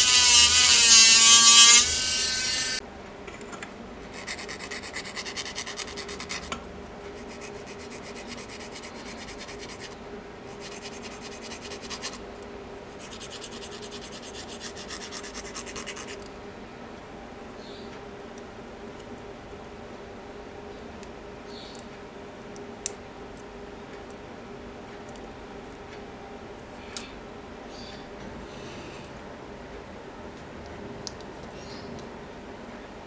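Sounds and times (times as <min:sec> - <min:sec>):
file rasping on plastic: 0:04.1 - 0:06.5.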